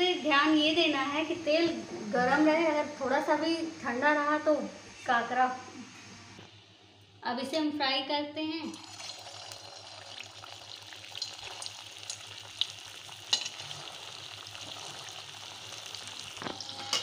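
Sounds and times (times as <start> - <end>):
dumplings sizzling in hot oil: 8.6 - 17.0.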